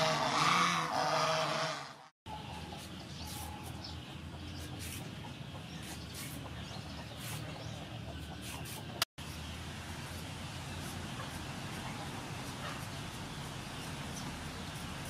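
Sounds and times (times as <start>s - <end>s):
chickens clucking: 2.7s - 9.1s.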